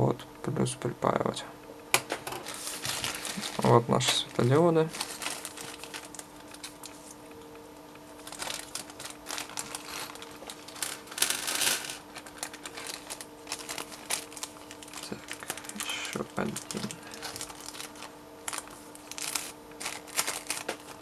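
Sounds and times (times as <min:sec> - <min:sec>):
faint steady hum: 0:00.0 - 0:21.0
plastic bag crinkling: 0:02.3 - 0:07.2, 0:08.2 - 0:21.0.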